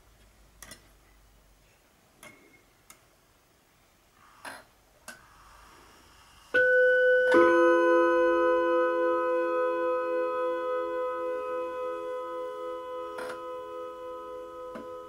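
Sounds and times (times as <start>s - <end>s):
two-note clock chime: 6.6s - 15.0s.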